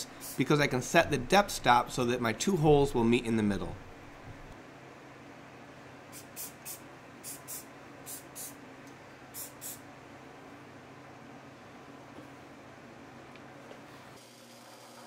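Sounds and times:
aerosol spray hisses: 0.0s - 0.4s, 6.2s - 8.6s, 9.4s - 9.8s.

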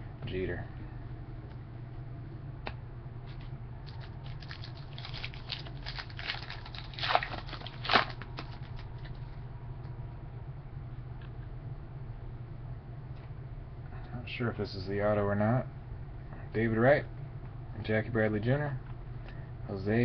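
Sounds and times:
wrapper crinkling: 3.8s - 9.2s
wrapper ripping: 3.8s - 9.2s.

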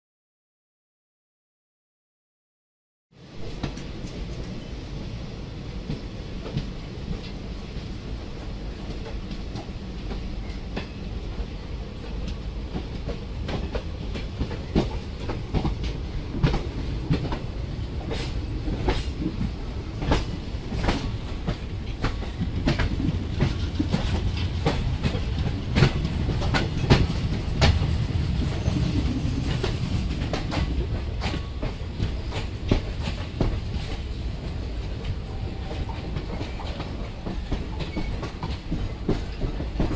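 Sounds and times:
train wheels rumbling on rail: 3.2s - 39.9s
wheels clacking over rail joints: 8.4s - 34.1s.

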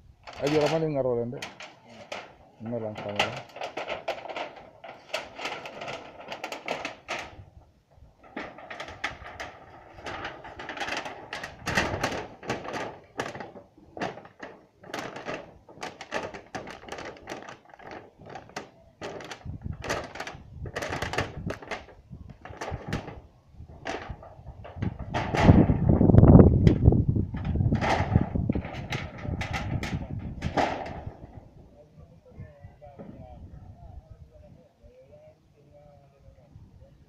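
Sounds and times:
sharp knocks and clatter: 8.2s - 23.2s, 23.8s - 25.9s, 26.7s - 31.4s.

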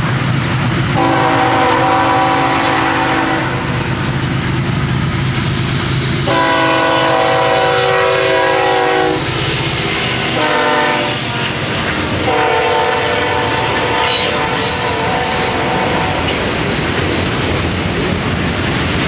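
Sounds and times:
locomotive rumble: 0.0s - 19.0s
railcars clickety-clack: 0.0s - 19.0s
locomotive air horn: 1.0s - 3.8s, 6.2s - 16.4s.

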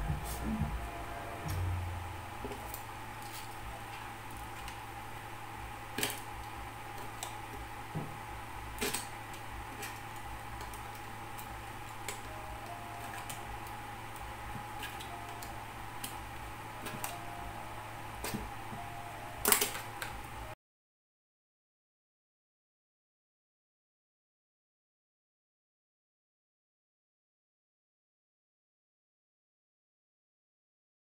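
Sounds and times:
steady hum: 0.0s - 20.6s.

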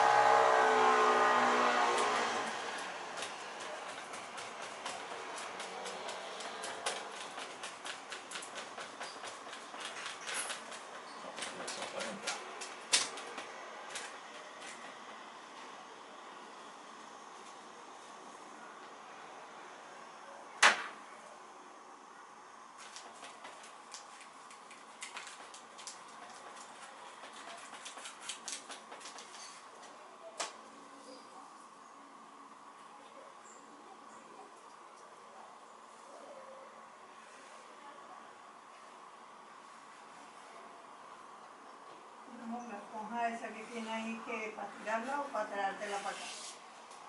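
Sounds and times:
paintbrush tapping and scratching: 3.1s - 12.8s, 22.9s - 29.4s
sponge dabbing and scrubbing: 45.8s - 46.6s.

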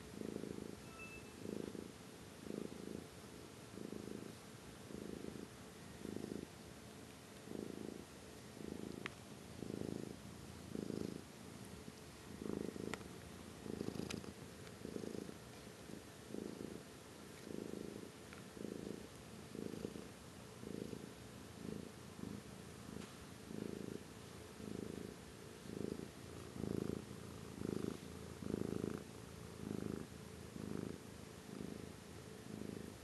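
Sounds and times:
cat purring: 0.0s - 33.0s.

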